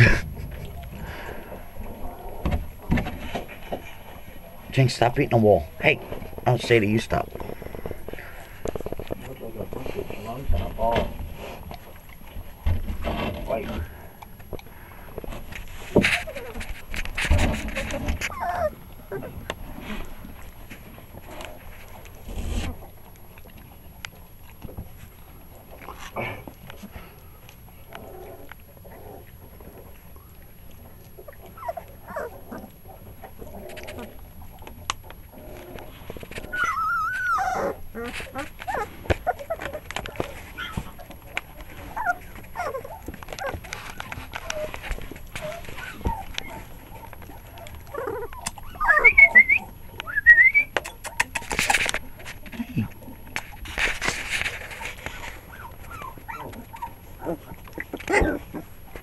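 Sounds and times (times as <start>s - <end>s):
puppies scuffling: 0.0s - 59.0s
puppies squeaky calls: 18.3s - 18.8s, 36.5s - 39.8s, 45.4s - 51.8s, 54.8s - 58.4s.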